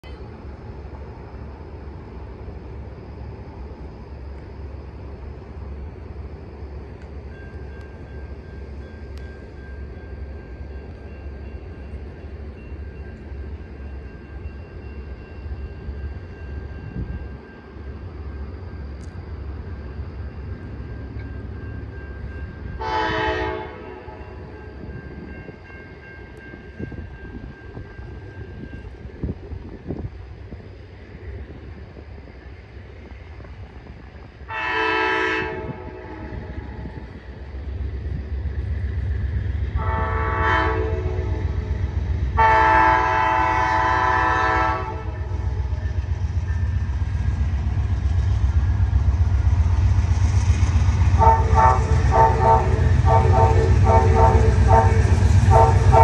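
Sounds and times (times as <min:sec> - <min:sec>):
diesel locomotive rumbling: 0:00.0 - 0:56.0
train horn blast: 0:22.8 - 0:24.2, 0:34.5 - 0:36.6, 0:39.7 - 0:41.5, 0:42.3 - 0:45.5, 0:51.1 - 0:56.0.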